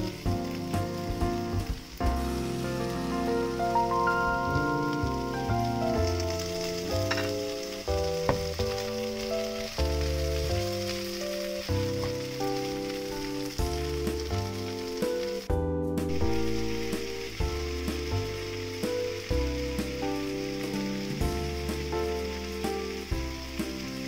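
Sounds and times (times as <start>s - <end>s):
vegetables sizzling in a frying pan: 0.0s - 15.5s, 16.1s - 24.0s
background music: 0.0s - 24.0s.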